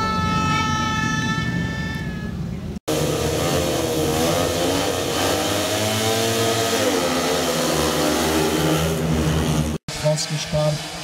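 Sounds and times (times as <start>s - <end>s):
motorcycle engines revving: 2.8s - 11.0s
motorcycles accelerating hard: 2.9s - 9.8s.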